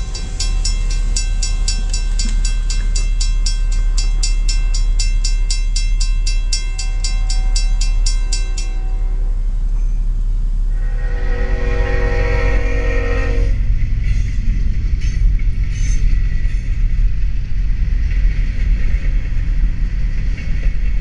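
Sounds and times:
crossing warning bell ringing: 0.0s - 16.8s
steady low rumble: 0.0s - 21.0s.

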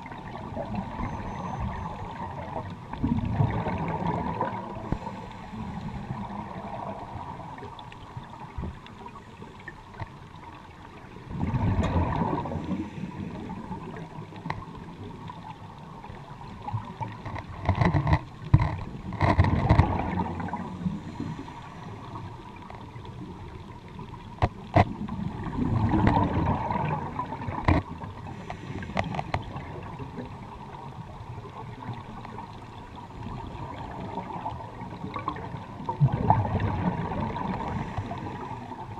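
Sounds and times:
regulator bubbles gurgling: 0.0s - 38.9s
underwater watery hiss: 3.4s - 7.7s, 11.4s - 14.0s, 19.9s - 22.7s, 28.1s - 30.0s, 36.0s - 38.9s.

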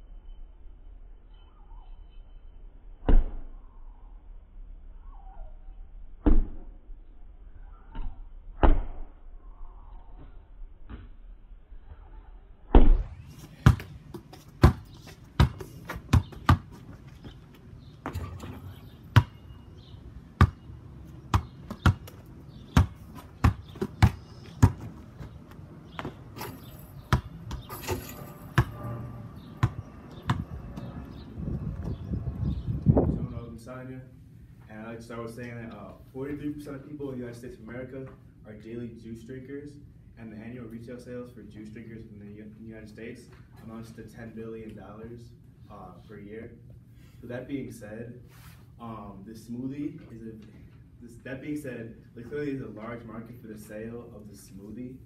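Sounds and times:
basketball bouncing: 7.9s - 9.0s, 10.9s - 11.2s, 12.7s - 19.6s, 20.3s - 28.8s, 29.5s - 31.0s.

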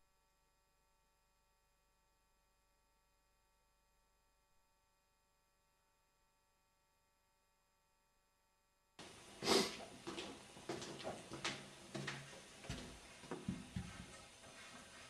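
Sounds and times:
footsteps: 9.0s - 15.0s.

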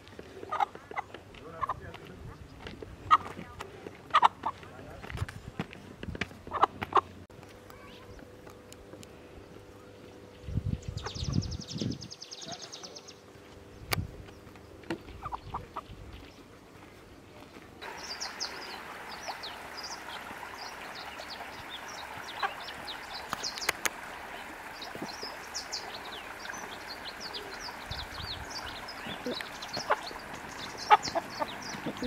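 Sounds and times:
steady outdoor hiss: 0.0s - 32.0s.

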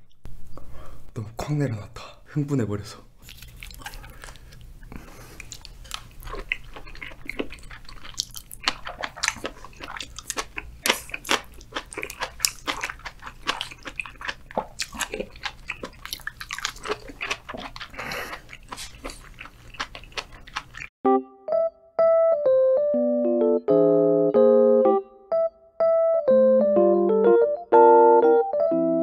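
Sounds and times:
oyster being chewed: 3.2s - 20.9s.

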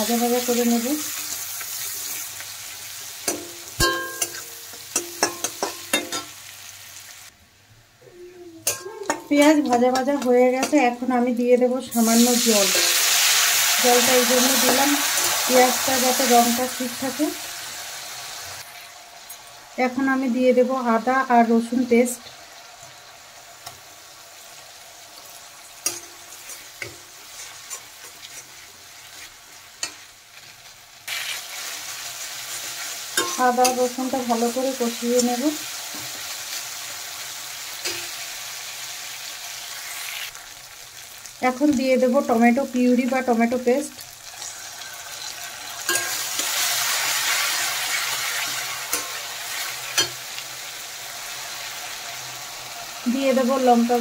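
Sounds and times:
onions sizzling in oil: 0.0s - 7.4s, 8.6s - 54.0s
metal spatula knocking pan: 3.2s - 6.3s, 8.6s - 10.9s
metal spatula scraping a pan: 25.8s - 31.4s, 44.3s - 50.2s.

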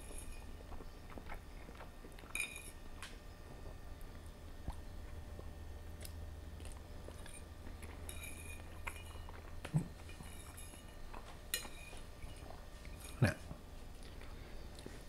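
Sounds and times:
fork clinking on ceramic plate: 8.1s - 9.4s, 10.0s - 13.2s.

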